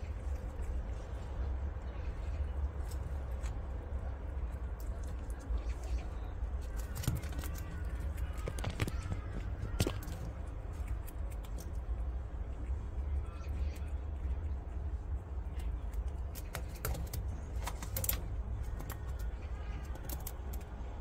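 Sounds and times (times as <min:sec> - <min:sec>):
prairie dogs clicking and crunching: 0:00.0 - 0:21.0
steady low rumble: 0:00.0 - 0:21.0.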